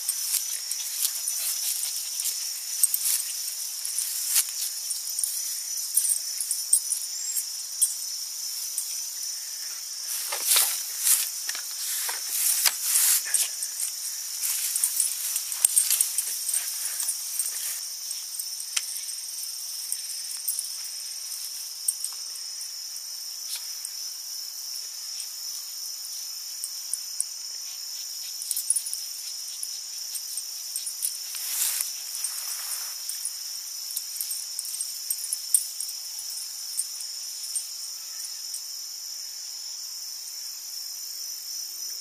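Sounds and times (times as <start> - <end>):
rustling noise: 0.0 - 6.6, 9.6 - 18.4, 30.8 - 35.2
high-pitched insect chorus: 0.0 - 42.0.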